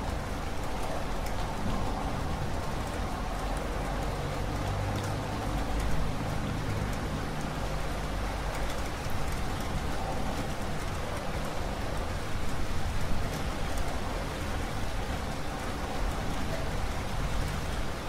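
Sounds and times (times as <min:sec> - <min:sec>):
steady rain hiss: 0:00.0 - 0:18.0.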